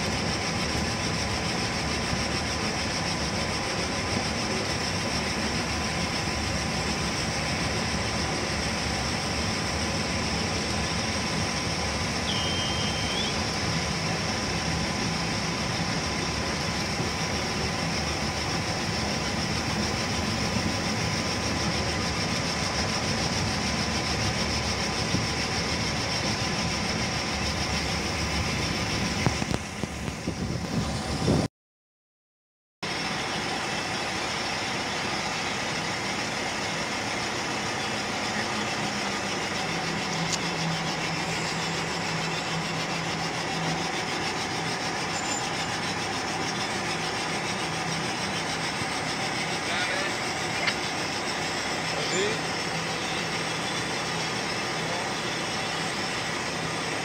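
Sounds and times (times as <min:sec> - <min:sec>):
locomotive engine running: 0:00.0 - 0:31.5, 0:32.8 - 0:57.0.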